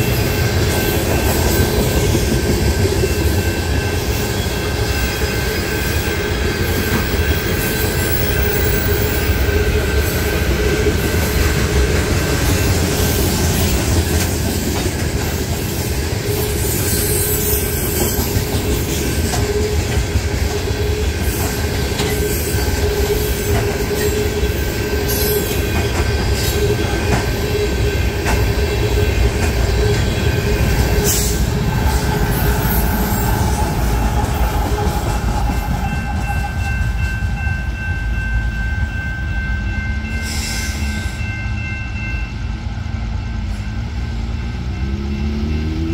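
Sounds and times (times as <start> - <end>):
diesel locomotives passing: 0.0 - 45.9
freight train rumbling past: 0.0 - 45.9.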